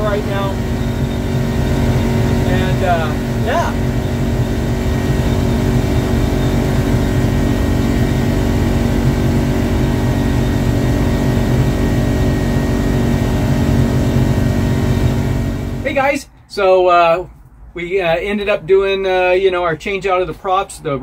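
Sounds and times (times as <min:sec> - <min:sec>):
outboard engine at full throttle: 0:00.0 - 0:15.9.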